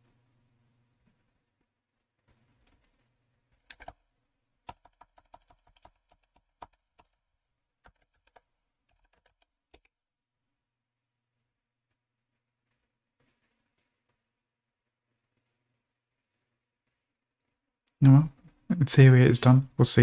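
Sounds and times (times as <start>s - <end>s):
keyboard typing: 3.6s - 4.0s, 4.6s - 7.2s, 7.8s - 9.9s.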